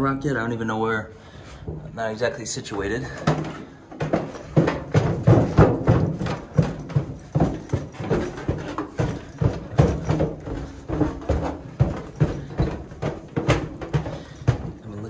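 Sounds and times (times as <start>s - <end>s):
footsteps on wooden steps: 1.6s - 15.0s.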